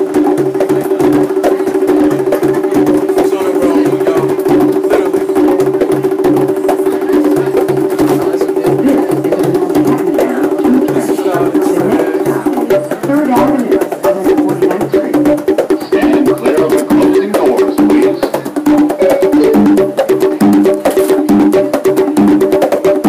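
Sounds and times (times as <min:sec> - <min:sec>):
deep beat: 0:00.0 - 0:23.0
held tone: 0:07.3 - 0:20.0.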